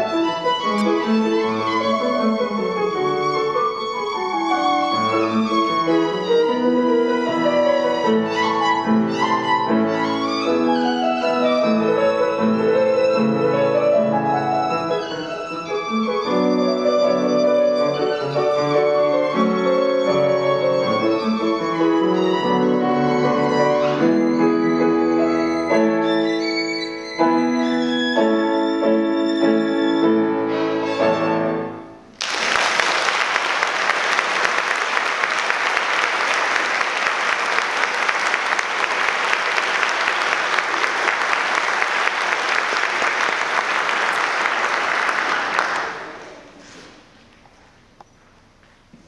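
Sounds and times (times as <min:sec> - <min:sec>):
violin playing: 0:00.0 - 0:32.0
piano accompaniment: 0:00.0 - 0:32.2
audience applauding: 0:32.2 - 0:46.6.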